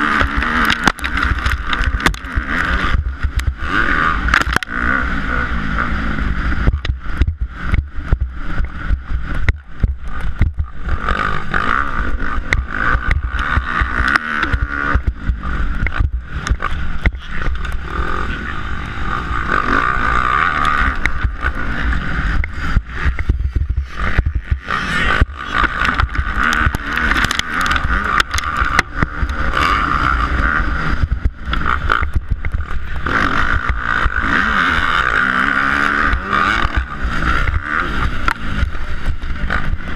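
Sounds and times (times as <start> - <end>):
motocross engine revving hard: 0.0 - 39.9
wind buffeting microphone: 20.9 - 34.3.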